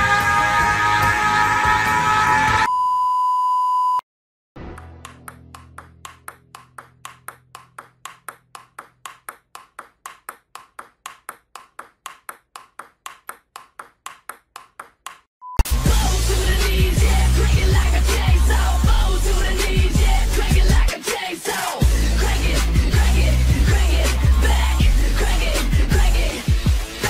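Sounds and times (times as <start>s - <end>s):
table tennis ball clicking: 5.0s - 15.3s.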